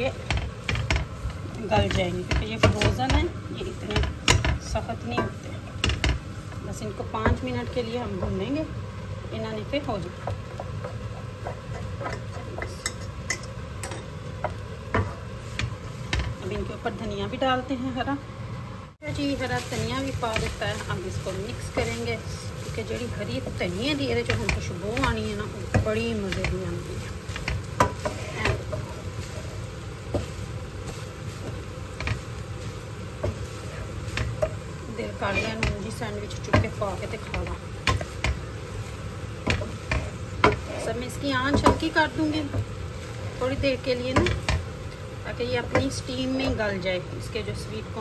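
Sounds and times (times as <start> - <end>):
wooden spoon scraping a pan: 0.0 - 8.6, 9.7 - 16.8, 19.1 - 44.8
spoon knocking on pan: 41.4 - 41.9.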